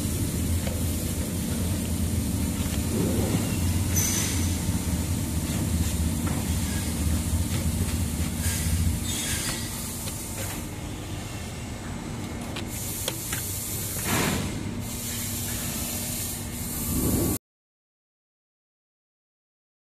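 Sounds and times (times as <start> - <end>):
low motor hum: 0.0 - 14.8, 16.7 - 17.4
labeling machine running: 0.0 - 15.0.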